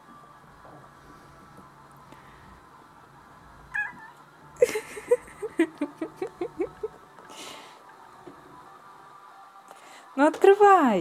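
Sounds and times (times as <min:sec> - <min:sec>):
cat meowing: 0:03.7 - 0:04.2.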